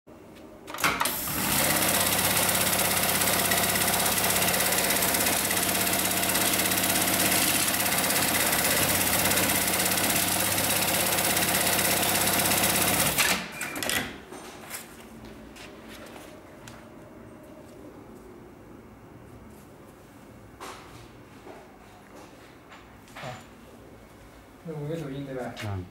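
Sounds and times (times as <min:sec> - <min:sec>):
sewing machine stitching: 0:00.7 - 0:14.1.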